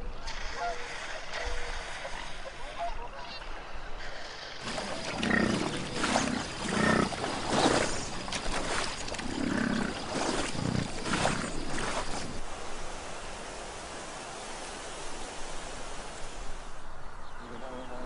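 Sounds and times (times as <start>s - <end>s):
bison bellowing: 4.6s - 8.1s, 9.2s - 11.6s.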